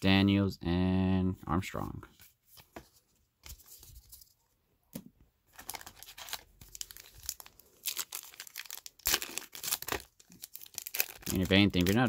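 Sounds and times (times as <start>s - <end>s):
wrapper tearing and crinkling: 5.5s - 12.0s.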